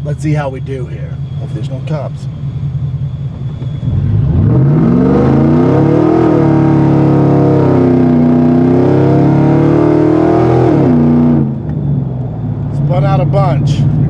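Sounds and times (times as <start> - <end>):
tires spinning: 2.8 - 13.1
engine at full throttle: 3.4 - 11.9.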